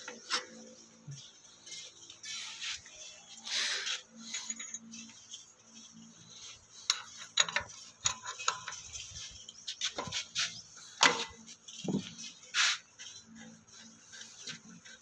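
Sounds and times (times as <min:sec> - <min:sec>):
spanner clinking on metal: 0:04.3 - 0:05.0.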